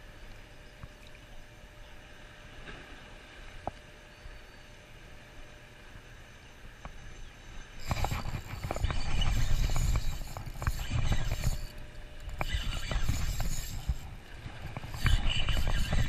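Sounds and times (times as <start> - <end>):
wind noise on microphone: 7.8 - 11.7, 12.3 - 16.0
fishing reel clicking: 7.8 - 16.0.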